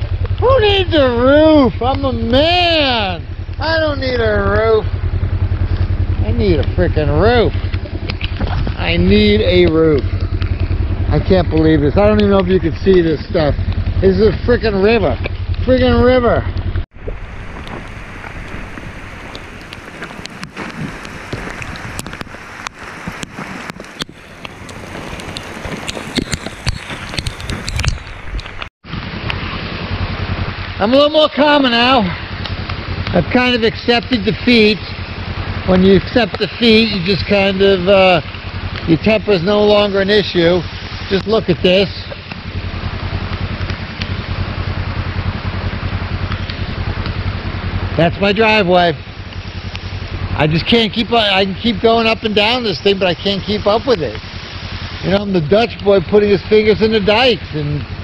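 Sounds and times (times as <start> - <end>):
wind on microphone: 0.0 - 30.9
steady rain: 0.0 - 58.0
vehicle engine drone: 0.0 - 58.0
boots walking on wet gravel: 17.1 - 28.7.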